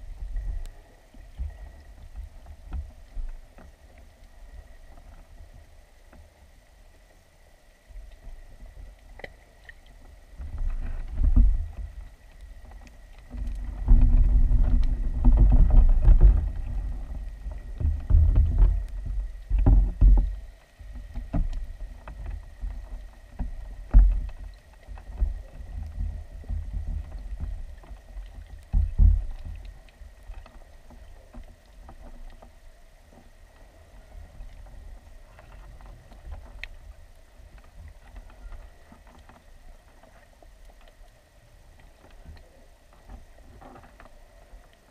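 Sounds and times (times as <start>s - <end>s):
water surging underwater: 0.0s - 44.9s.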